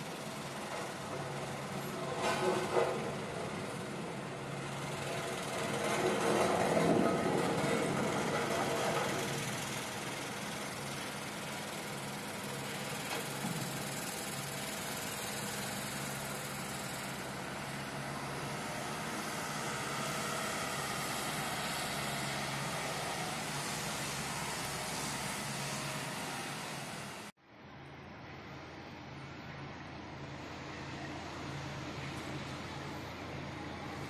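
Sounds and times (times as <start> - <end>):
engine running: 0.0 - 27.3, 28.0 - 34.0
outdoor noise: 0.0 - 34.0.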